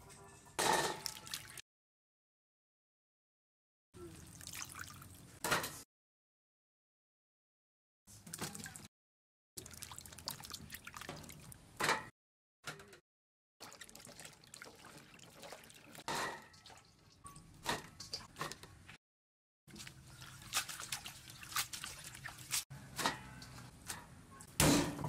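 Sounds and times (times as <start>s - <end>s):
water splashing and dripping: 0.9s - 1.6s, 4.2s - 5.2s, 8.2s - 8.9s, 9.6s - 11.6s, 13.6s - 18.3s, 19.7s - 22.7s.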